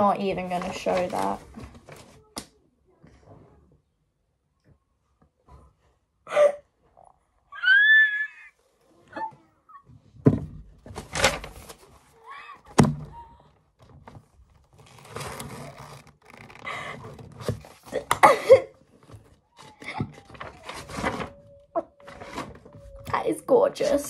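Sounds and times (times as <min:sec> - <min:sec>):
paper rustling: 0:00.0 - 0:02.4, 0:10.8 - 0:12.9, 0:13.8 - 0:24.0.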